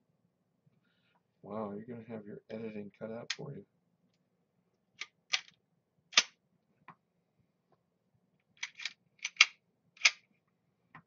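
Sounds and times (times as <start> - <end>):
pistol parts clicking: 5.0 - 5.5, 6.1 - 6.3, 8.6 - 10.2.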